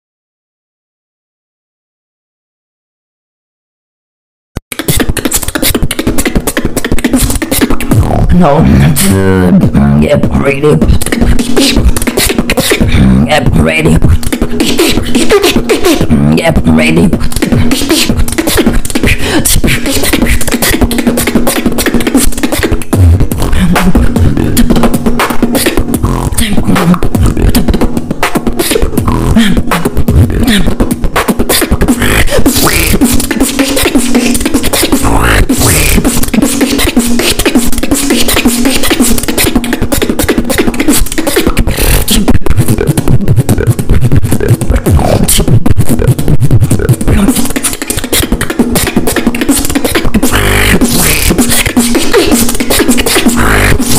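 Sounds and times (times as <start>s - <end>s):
beatboxing: 4.7s - 53.9s
held low vocal tone: 7.9s - 20.9s, 23.0s - 24.8s, 26.0s - 27.8s, 28.7s - 30.8s, 31.9s - 33.5s, 35.0s - 36.5s, 41.3s - 48.6s, 50.1s - 53.9s.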